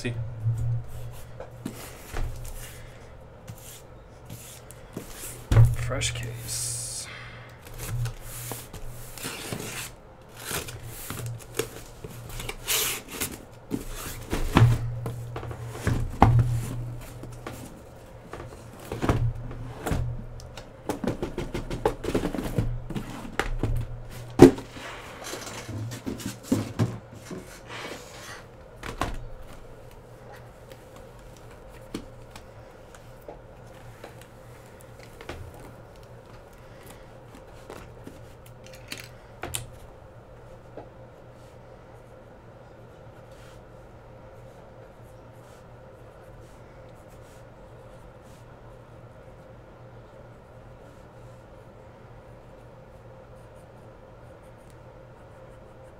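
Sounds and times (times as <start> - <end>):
low steady hum: 0.0 - 55.9
cardboard rustling and scraping: 7.7 - 29.7.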